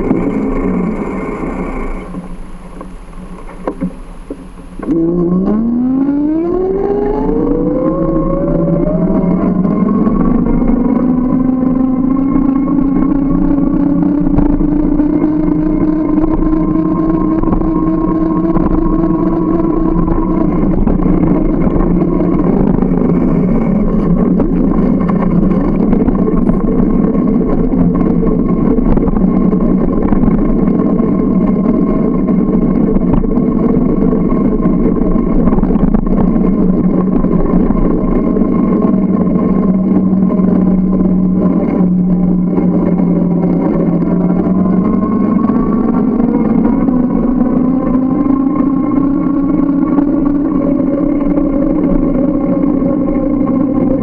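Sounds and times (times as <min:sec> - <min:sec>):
humming tone: 0:00.0 - 0:54.0
moving bicycle hum and rush: 0:00.0 - 0:54.0.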